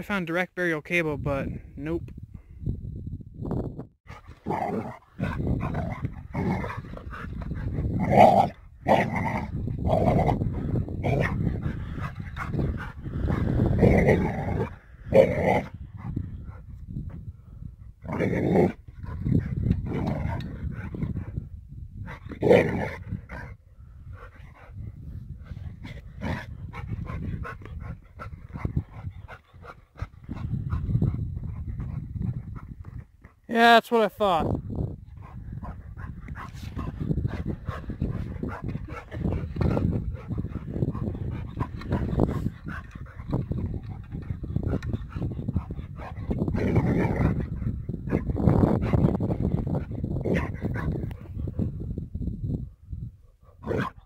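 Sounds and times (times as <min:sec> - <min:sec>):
dog growling: 0:04.2 - 0:16.6, 0:18.0 - 0:21.4, 0:22.1 - 0:23.6, 0:25.7 - 0:32.0, 0:35.2 - 0:49.2.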